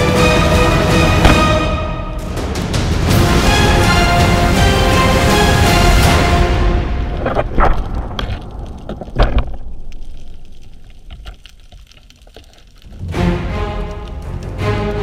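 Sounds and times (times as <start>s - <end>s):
background music: 0.0s - 7.4s, 12.9s - 15.0s
heavy thump: 1.1s - 1.8s.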